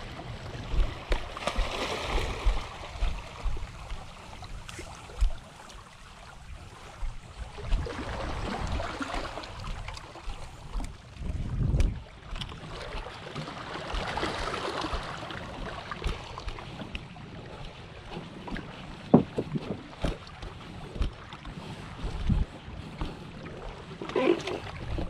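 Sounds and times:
wind buffeting microphone: 0:00.0 - 0:05.6, 0:06.3 - 0:13.0, 0:13.9 - 0:25.0
footsteps on beach stones: 0:00.8 - 0:05.7.

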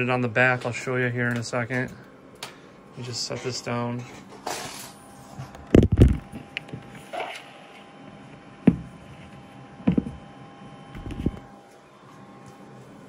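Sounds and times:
knocks on a workbench: 0:09.8 - 0:10.2.

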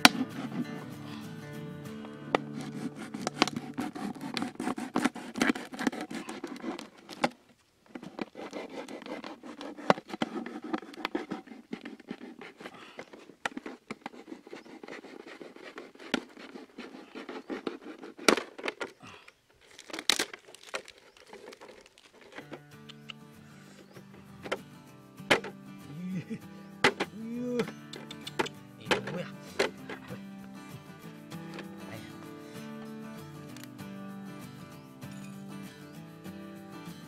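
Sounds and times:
plastic bottle crinkling: 0:02.3 - 0:24.7
knife cutting plastic: 0:02.4 - 0:23.1
plastic clicks: 0:18.2 - 0:23.2, 0:27.9 - 0:30.1.

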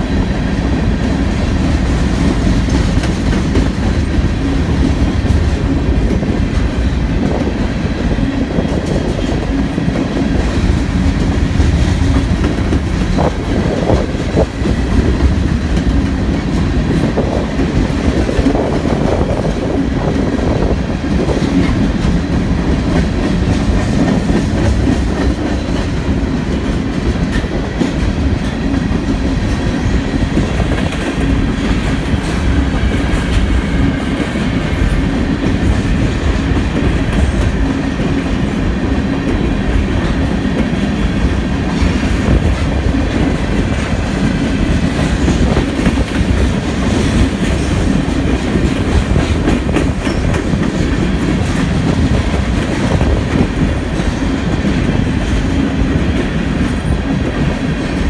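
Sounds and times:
freight train rolling past: 0:00.0 - 0:58.0.

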